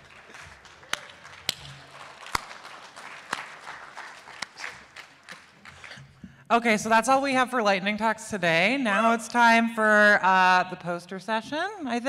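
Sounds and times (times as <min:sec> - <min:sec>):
audience applauding: 0:00.0 - 0:06.0
sharp claps close to microphone: 0:00.0 - 0:06.3.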